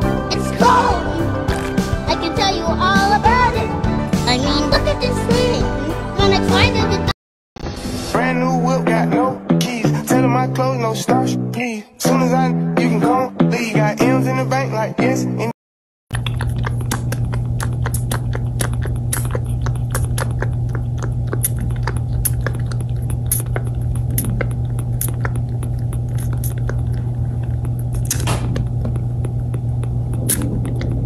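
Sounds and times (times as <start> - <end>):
kitten sucking from a bottle: 16.2 - 31.0
steady low hum: 16.2 - 31.0.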